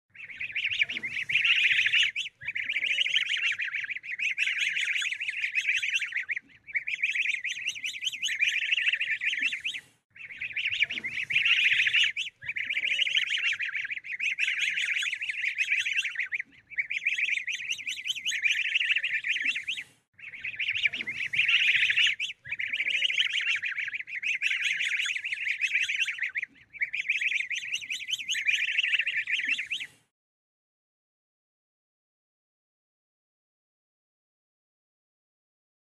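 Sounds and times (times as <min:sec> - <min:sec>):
ducklings peeping: 0:00.2 - 0:30.0.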